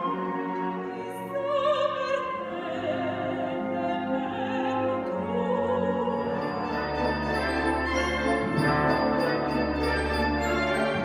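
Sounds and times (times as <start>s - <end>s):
symphony orchestra: 0.0s - 11.0s
woman singing operatically: 1.0s - 6.6s.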